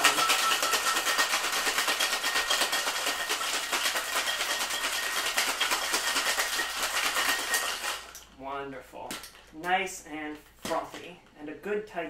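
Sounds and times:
ice rattling in cocktail shaker: 0.0 - 8.4.

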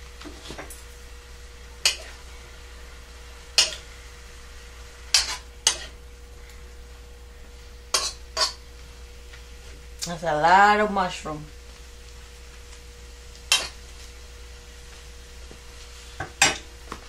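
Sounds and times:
faint steady hum: 0.0 - 17.0
spatula scraping and knocking wok: 1.8 - 2.3, 5.1 - 6.0.

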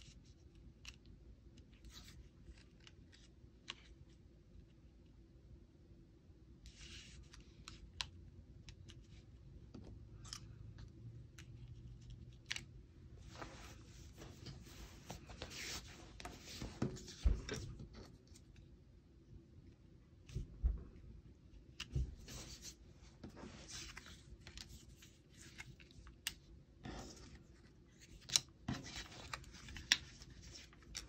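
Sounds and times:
paper rustling: 21.9 - 26.2.

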